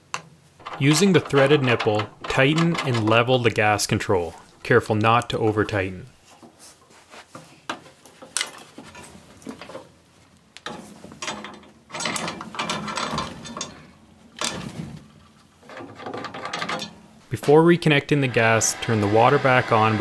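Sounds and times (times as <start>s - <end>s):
valve threads grinding and creaking: 0.6s - 3.9s, 18.2s - 20.0s.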